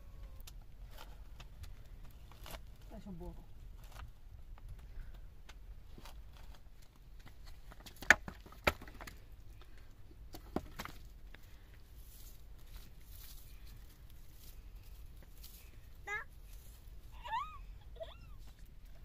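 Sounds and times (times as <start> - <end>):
stones and sticks knocking: 7.2 - 9.3, 10.3 - 11.1.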